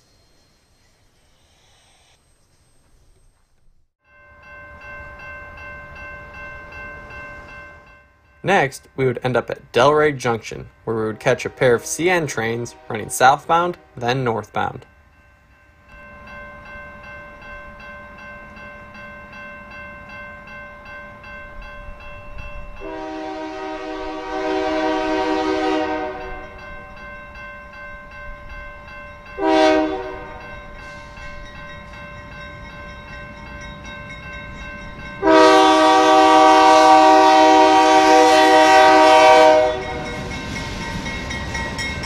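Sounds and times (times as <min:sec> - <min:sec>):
electronic crossing bell ringing: 0:04.0 - 0:08.7, 0:26.1 - 0:36.4, 0:39.4 - 0:42.0
train air horn blasts: 0:11.2 - 0:14.0, 0:22.8 - 0:26.4, 0:29.4 - 0:30.5, 0:35.2 - 0:40.2.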